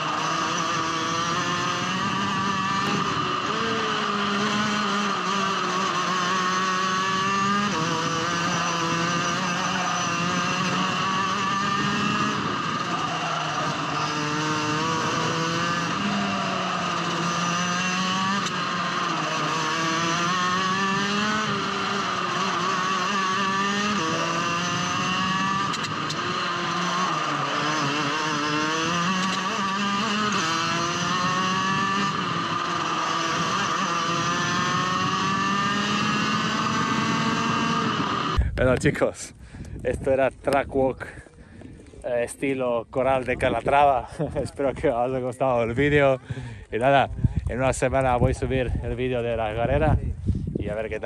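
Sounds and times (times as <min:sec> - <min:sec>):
kart engine revving: 0:00.0 - 0:38.4.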